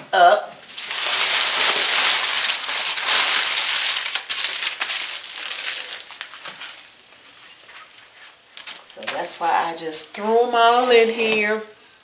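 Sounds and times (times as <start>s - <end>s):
foil being crumpled: 0.6s - 9.3s.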